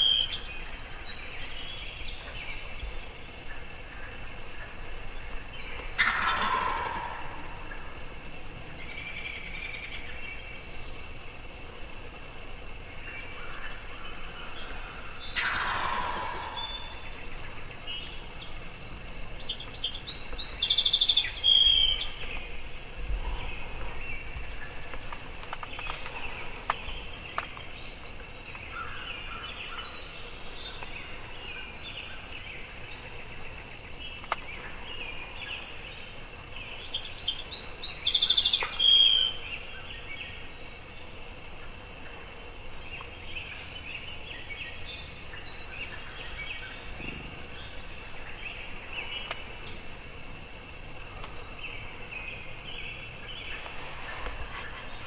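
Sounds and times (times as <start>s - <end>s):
high clear birdsong: 0.0s - 55.0s
songbirds chirping: 0.0s - 55.0s
turkey gobbling: 6.0s - 7.9s, 15.4s - 16.9s.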